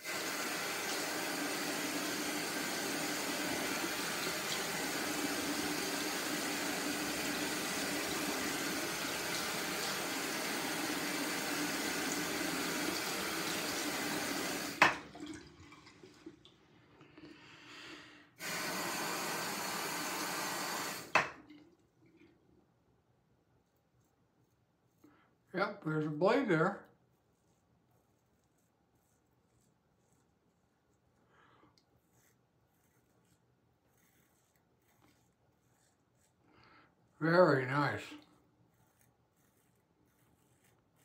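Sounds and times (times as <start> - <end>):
sink tap running: 0.0 - 16.2, 18.4 - 21.4
tap shut off knock: 21.1 - 21.4
faint handling sounds: 21.5 - 25.6.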